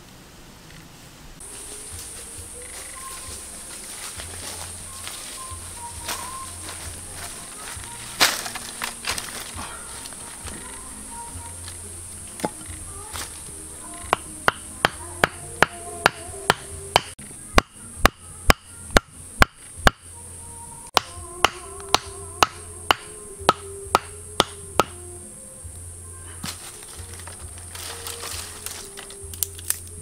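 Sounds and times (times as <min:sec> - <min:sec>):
background music: 0:01.4 - 0:30.0
wooden stakes pounded into dirt: 0:06.0 - 0:10.7, 0:12.4 - 0:20.1, 0:21.0 - 0:25.0, 0:26.4 - 0:29.9.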